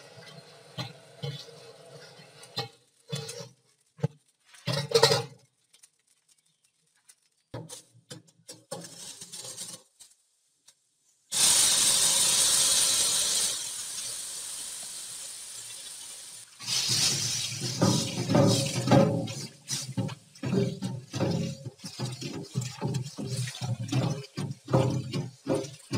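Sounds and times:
hot wok sizzling under water: 0:00.0 - 0:05.2, 0:08.7 - 0:10.0, 0:11.2 - 0:25.9
running tap water: 0:11.4 - 0:25.9
sponge scrubbing wok: 0:16.5 - 0:25.9.

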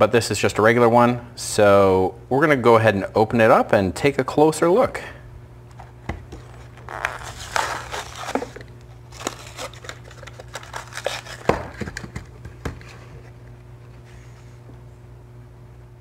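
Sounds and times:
cardboard tearing: 0:06.4 - 0:11.8
plastic blister pack crinkling: 0:06.4 - 0:12.2.

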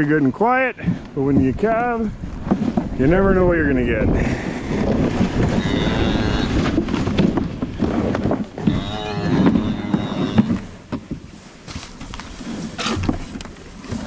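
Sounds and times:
plastic sled scraping on straw: 0:01.2 - 0:14.0
cow lowing: 0:04.4 - 0:06.9, 0:07.8 - 0:10.7.

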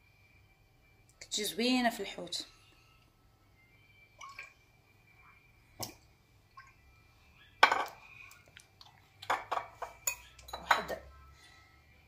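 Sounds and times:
kitchenware clinks on stone countertop: 0:07.6 - 0:08.0, 0:09.3 - 0:11.1.

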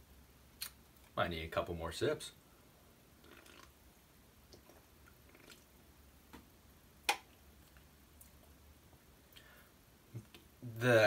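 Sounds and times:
person sipping drink: 0:03.2 - 0:03.7, 0:04.5 - 0:05.7.

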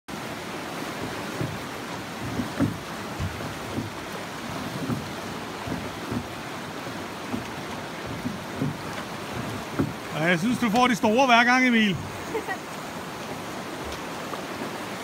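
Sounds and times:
fast river water rushing: 0:00.1 - 0:15.0
short low thumps: 0:01.0 - 0:10.1.

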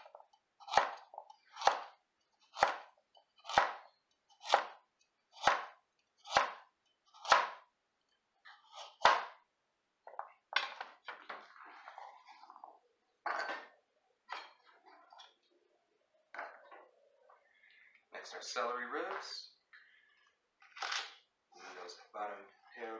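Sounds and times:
knife slicing carrot on board: 0:02.5 - 0:04.8, 0:05.4 - 0:07.6.

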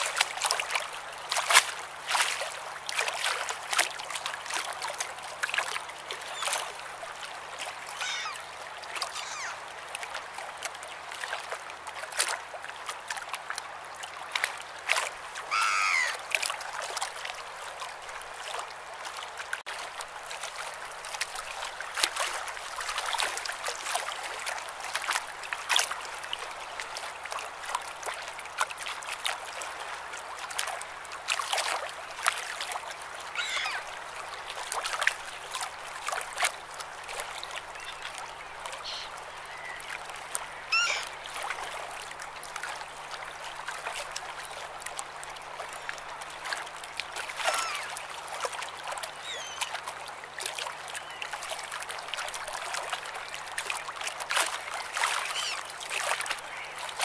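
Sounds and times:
sea water lapping at shore: 0:00.0 - 0:57.0
gull calls: 0:08.0 - 0:08.5, 0:09.1 - 0:09.6, 0:15.5 - 0:16.2, 0:33.3 - 0:33.9, 0:38.8 - 0:39.8, 0:40.7 - 0:41.1, 0:47.4 - 0:47.9, 0:55.3 - 0:55.6.

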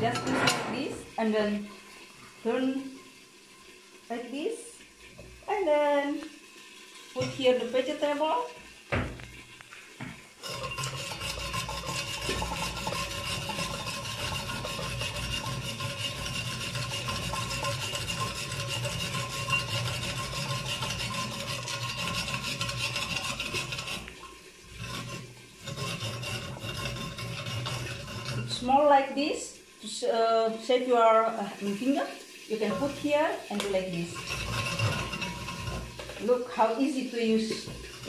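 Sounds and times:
food processor rasping metallically: 0:10.4 - 0:28.7, 0:34.1 - 0:36.2.

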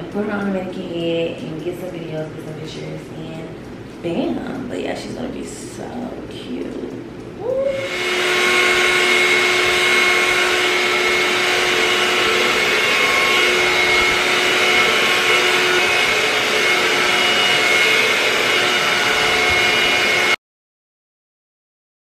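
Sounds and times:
hair dryer running: 0:07.4 - 0:20.4.

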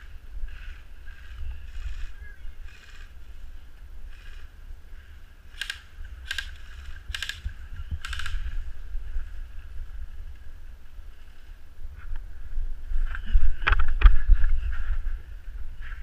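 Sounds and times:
wind rumble: 0:00.0 - 0:16.0
muffled airsoft gunfire: 0:05.5 - 0:08.6
camera handling noise: 0:05.6 - 0:08.6.

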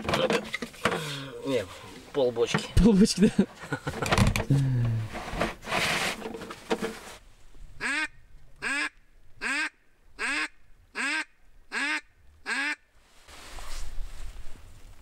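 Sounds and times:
duck quacking: 0:07.8 - 0:12.9.

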